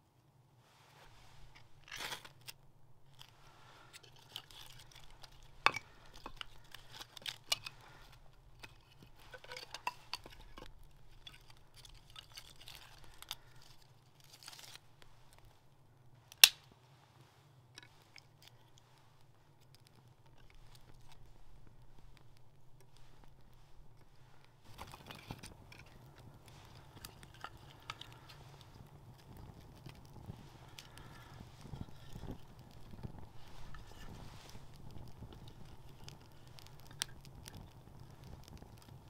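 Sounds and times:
fire crackling: 0:00.3 - 0:39.0
kindling sticks knocking together: 0:04.9 - 0:12.8
sharp wooden crack: 0:16.4 - 0:16.7.

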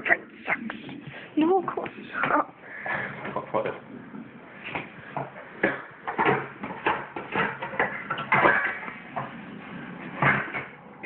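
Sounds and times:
pots and pans clanking: 0:04.7 - 0:09.4.

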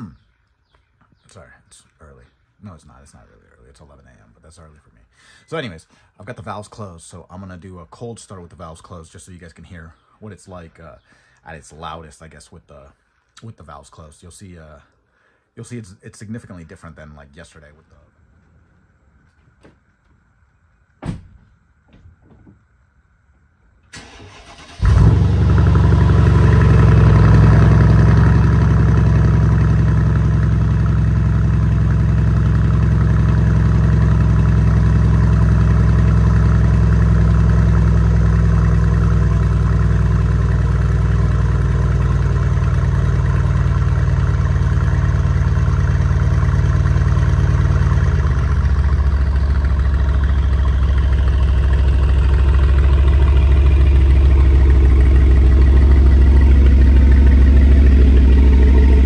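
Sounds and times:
car engine cranking: 0:23.9 - 0:59.0
car engine fast idle: 0:23.9 - 0:59.0.

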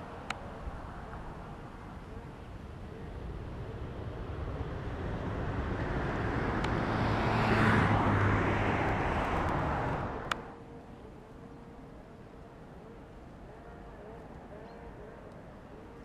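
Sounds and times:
road vehicle passing: 0:00.0 - 0:16.0.

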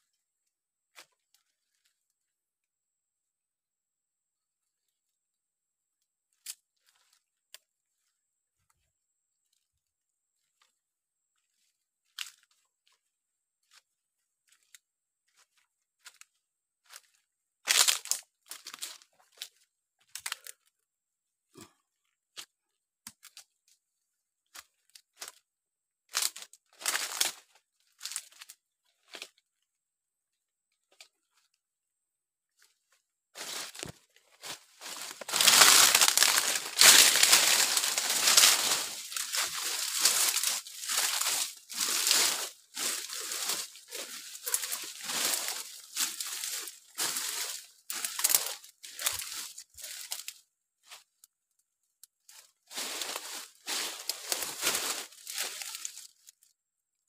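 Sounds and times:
footsteps crunching dry leaves: 0:14.5 - 0:20.6, 0:26.1 - 0:28.5, 0:33.4 - 0:51.1, 0:52.3 - 0:56.4
branches brushing past body: 0:33.4 - 0:50.3, 0:52.7 - 0:56.3.

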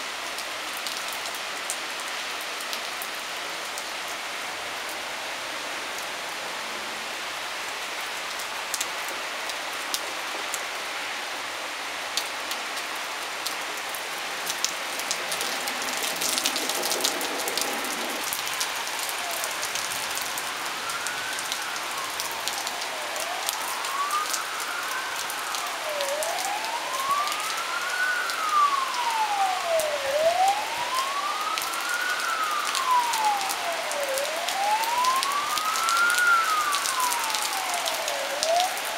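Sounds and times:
heavy rain hissing: 0:01.9 - 0:38.9
emergency siren wailing: 0:11.4 - 0:38.9
raindrops ticking: 0:13.4 - 0:38.9.

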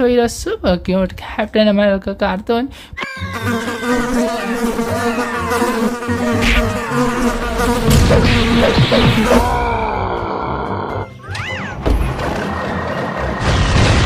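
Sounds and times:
cartoon bees buzzing: 0:03.0 - 0:11.2.

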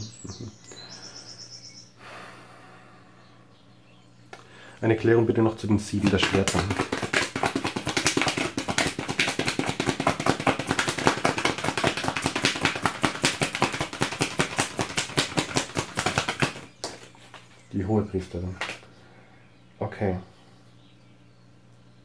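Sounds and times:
cards being shuffled: 0:05.9 - 0:17.6, 0:18.5 - 0:18.8.

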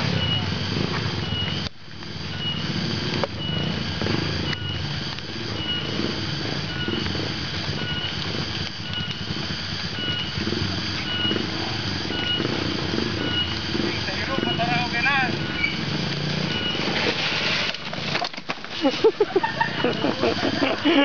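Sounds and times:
distant motorcycle engines: 0:00.0 - 0:21.0.

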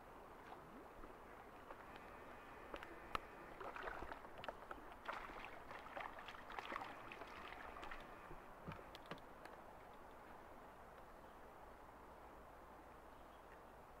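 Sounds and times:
fish splashing at water surface: 0:05.0 - 0:08.1.

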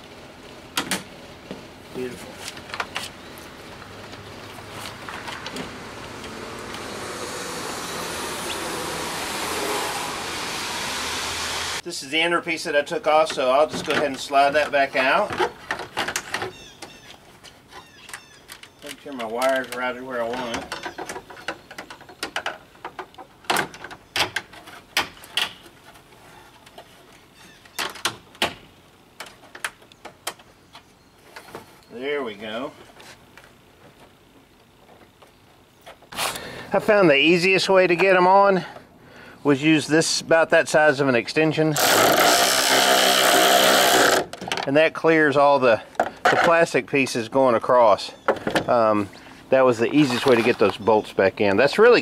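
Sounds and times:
vehicle engine and tyre noise: 0:00.0 - 0:11.8.

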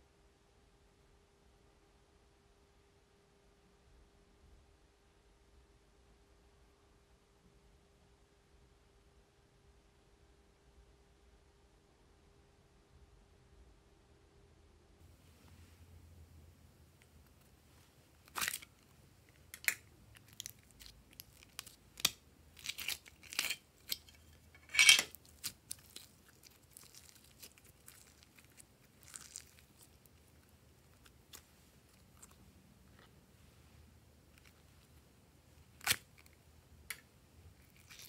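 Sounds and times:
slime crackling and popping: 0:18.2 - 0:32.4, 0:35.6 - 0:37.0, 0:37.6 - 0:38.0.

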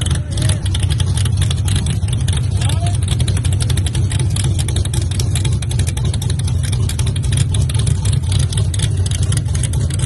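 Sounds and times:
race car engines idling loudly: 0:00.0 - 0:10.0.

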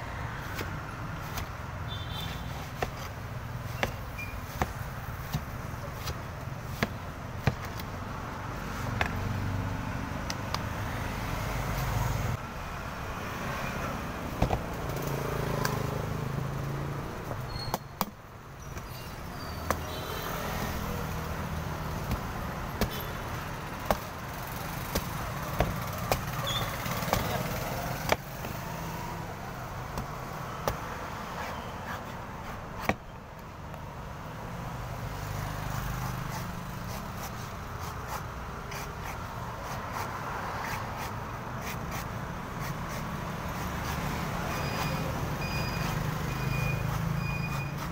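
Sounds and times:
cleaver chopping coconut husk: 0:00.3 - 0:10.8, 0:14.2 - 0:29.1, 0:29.7 - 0:33.1, 0:35.6 - 0:47.9.

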